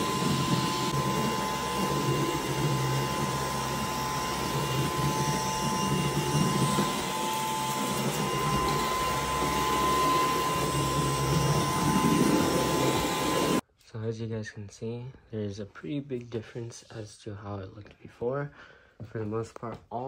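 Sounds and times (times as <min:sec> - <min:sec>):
vacuum cleaner motor whirring: 0:00.0 - 0:13.6.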